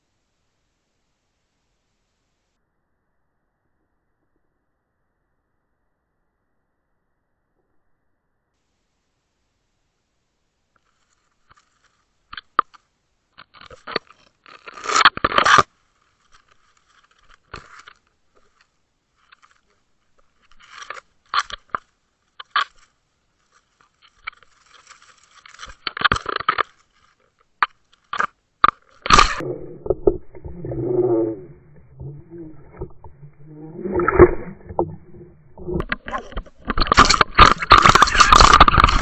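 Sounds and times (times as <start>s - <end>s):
underwater crunching and scraping clicks: 10.8s - 39.0s.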